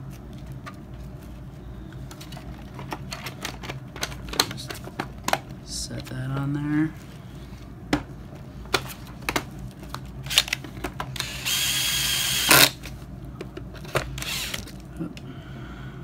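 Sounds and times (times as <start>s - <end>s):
handling clicks and knocks: 2.1s - 6.5s
power drill driving a screw: 11.2s - 12.8s, 14.2s - 14.6s.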